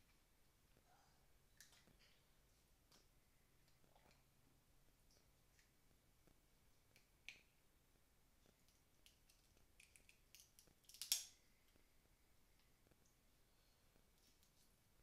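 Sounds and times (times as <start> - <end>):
shellfish shells cracking: 8.7 - 11.4.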